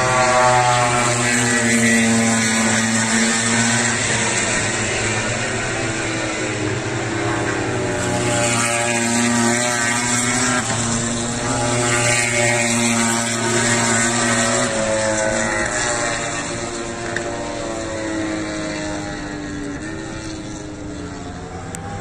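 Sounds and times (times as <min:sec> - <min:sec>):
racing motorcycles at high revs: 0:00.0 - 0:22.0.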